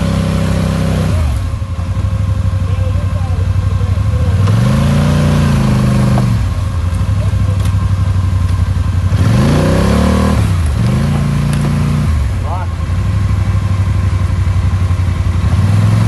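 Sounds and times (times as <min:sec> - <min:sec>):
atv engine revving: 0:00.0 - 0:16.0
tires spinning in mud: 0:03.8 - 0:12.7.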